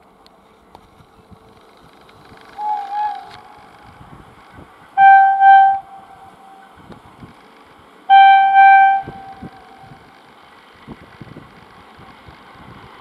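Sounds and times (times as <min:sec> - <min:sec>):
approaching train noise: 0:00.0 - 0:13.0
locomotive air horn blasts: 0:02.6 - 0:03.8, 0:05.0 - 0:06.8, 0:08.1 - 0:10.0
soft wavering tone: 0:05.0 - 0:06.8, 0:08.1 - 0:10.0.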